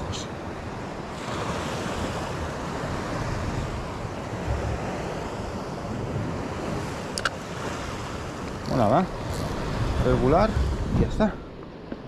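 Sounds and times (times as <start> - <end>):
sea surf washing on shore: 0.0 - 12.0
wind buffeting microphone: 0.0 - 12.0.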